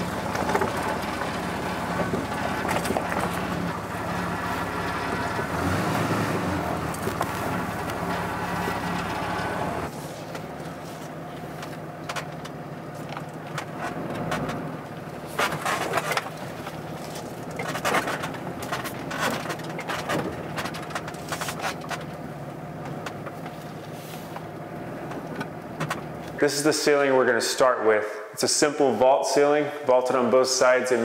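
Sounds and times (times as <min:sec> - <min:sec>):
knocks and scrapes: 0:00.0 - 0:22.2
truck engine idling: 0:00.0 - 0:27.7.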